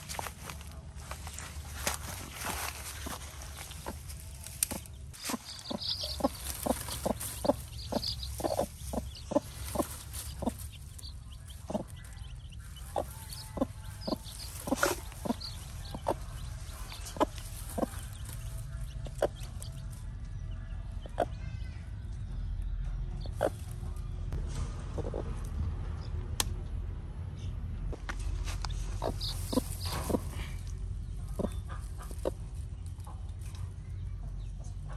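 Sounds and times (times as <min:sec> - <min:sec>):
chicks peeping: 0:00.0 - 0:24.3, 0:27.4 - 0:34.9
hen clucking: 0:01.6 - 0:21.6, 0:23.2 - 0:24.0, 0:28.5 - 0:34.9.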